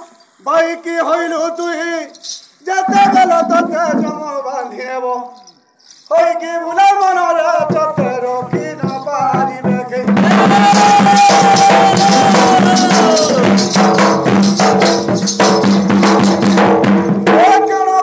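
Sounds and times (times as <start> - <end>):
jangling rattle percussion: 2.1 - 4.2, 5.3 - 6.3, 7.7 - 9.6, 10.6 - 16.7
folk dance music: 2.6 - 4.5, 7.5 - 17.5
barrel drum beaten fast: 2.8 - 4.3, 7.6 - 17.6.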